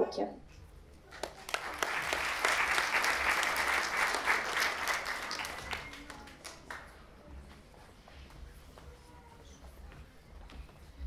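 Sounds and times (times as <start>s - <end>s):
audience applauding: 1.0s - 7.0s.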